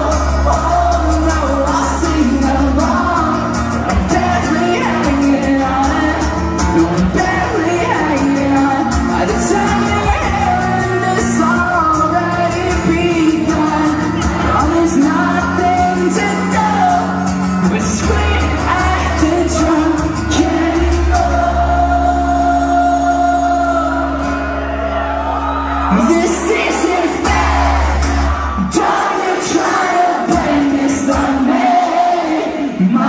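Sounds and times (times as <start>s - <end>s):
live rock band playing: 0.0s - 33.0s
person singing: 0.0s - 33.0s.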